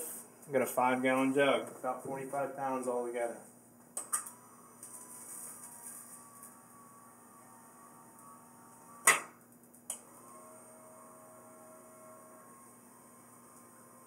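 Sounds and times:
actuator motor whine: 4.2 - 14.0
lower motor tone: 4.4 - 9.0, 10.0 - 14.0.

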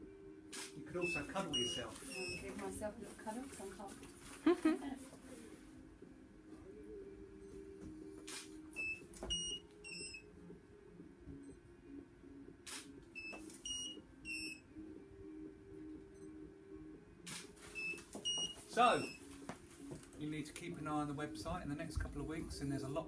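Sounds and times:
short high beeps: 1.0 - 2.5, 17.8 - 19.2.

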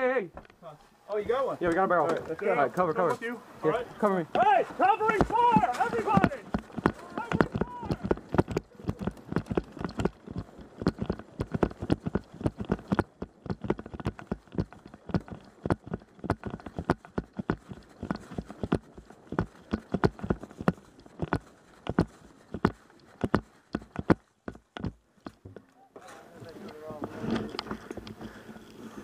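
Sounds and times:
running footsteps: 4.0 - 25.8.

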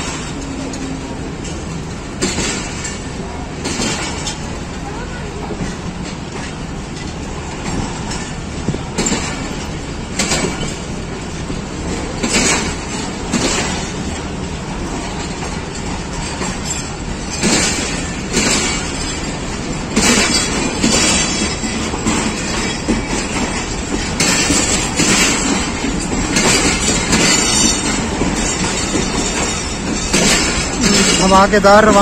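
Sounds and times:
train coaches rumbling past: 0.0 - 32.0
wheels clacking over rail joints: 0.0 - 32.0.

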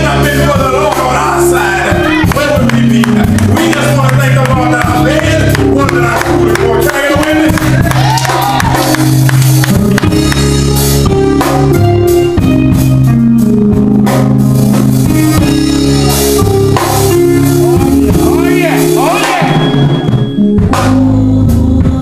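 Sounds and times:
people singing gospel: 0.0 - 8.4
electric keyboard chords: 0.0 - 22.0
percussion strikes: 1.8 - 21.2.

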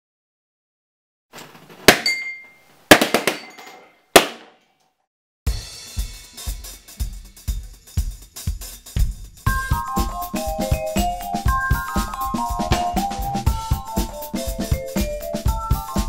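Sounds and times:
balloons bursting: 1.4 - 2.1, 2.9 - 3.4, 4.1 - 4.6
background music with drum beat: 5.5 - 16.0.

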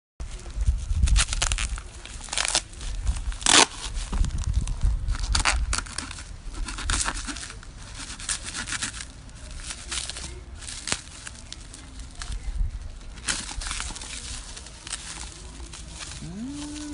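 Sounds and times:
paper and tape ripping: 0.7 - 12.4, 13.2 - 16.9.

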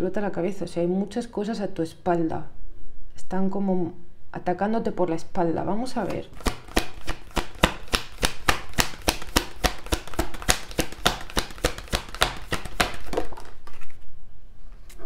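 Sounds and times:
cards slapping onto a pile: 6.0 - 14.0.

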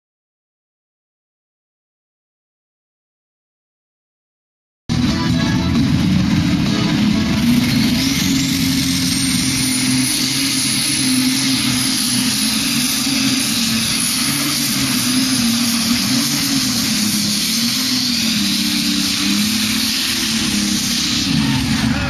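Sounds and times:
thin high whine: 4.9 - 22.0
tractor engine under full load: 4.9 - 22.0.

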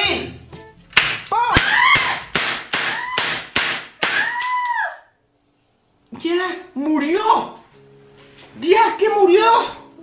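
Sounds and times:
toy cap gun crack: 0.9 - 4.6.

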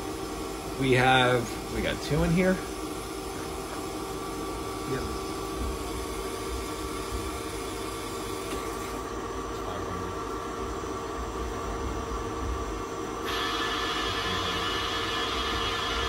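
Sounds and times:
lathe machine hum with tones: 0.0 - 16.0
hiss: 13.3 - 16.0.

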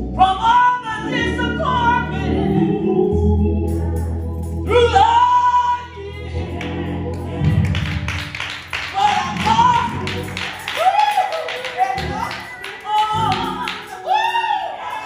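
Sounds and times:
electric bass: 0.0 - 10.5
organ-toned keyboard chords: 0.0 - 14.1.

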